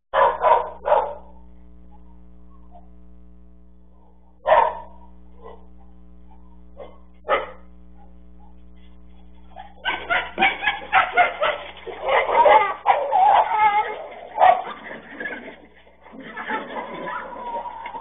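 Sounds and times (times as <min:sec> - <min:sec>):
dogs barking: 0:00.1 - 0:02.9, 0:04.0 - 0:18.0
dog yelping: 0:00.2 - 0:01.3, 0:09.5 - 0:18.0.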